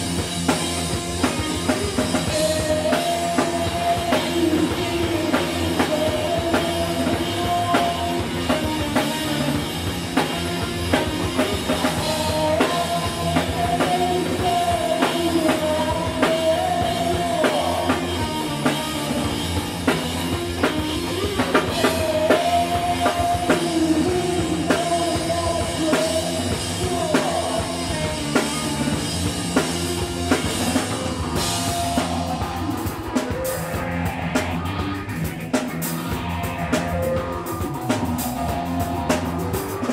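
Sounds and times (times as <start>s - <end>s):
bass guitar: 0.0s - 39.9s
driving drum beat: 0.0s - 39.9s
electric guitar bending melody: 27.7s - 39.9s.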